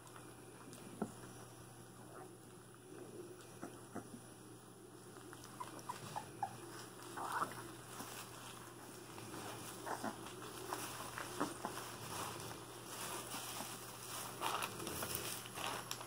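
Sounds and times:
puppies suckling: 0:00.1 - 0:16.0
rustling of wood shavings: 0:05.1 - 0:16.0
puppies squeaking: 0:05.4 - 0:08.2.

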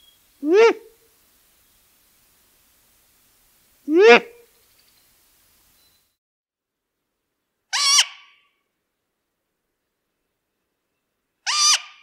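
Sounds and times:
young owl shrill calls: 0:07.7 - 0:08.4, 0:11.5 - 0:12.0.

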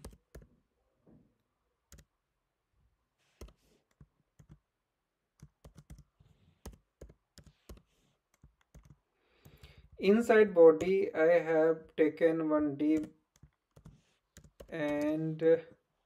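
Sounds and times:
keyboard typing: 0:00.0 - 0:00.5, 0:01.9 - 0:02.1, 0:03.3 - 0:04.6, 0:05.4 - 0:11.1, 0:12.8 - 0:15.2.

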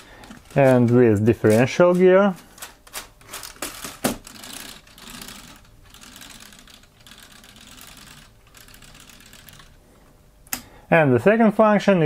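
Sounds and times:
plastic parts clicking: 0:00.2 - 0:07.9.

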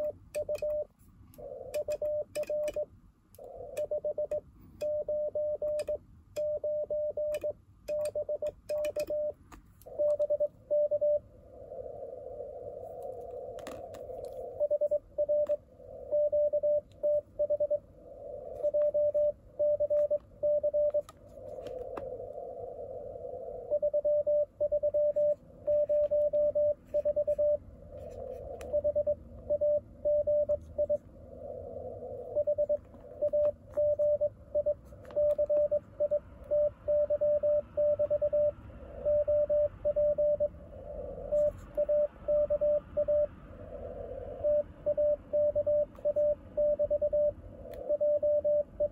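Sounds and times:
morse code tone: 0:00.0 - 0:11.2, 0:14.5 - 0:17.8, 0:18.5 - 0:21.1, 0:23.7 - 0:31.0, 0:32.3 - 0:40.5, 0:41.2 - 0:43.3, 0:44.3 - 0:48.9
radio band noise hissing: 0:25.2 - 0:34.1, 0:40.5 - 0:44.8.

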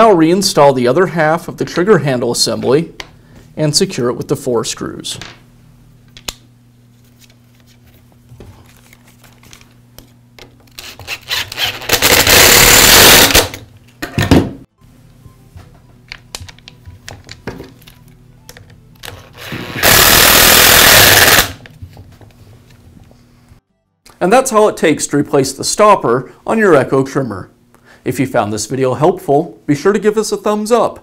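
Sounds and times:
cordless screwdriver driving screws: 0:10.8 - 0:13.5, 0:19.4 - 0:21.6.

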